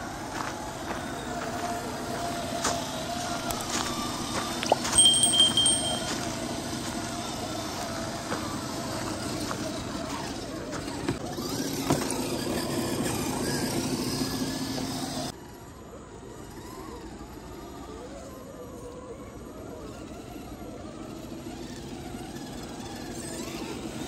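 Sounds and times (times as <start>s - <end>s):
electric motors whining: 0.0s - 24.0s
high electronic chime: 4.8s - 6.2s.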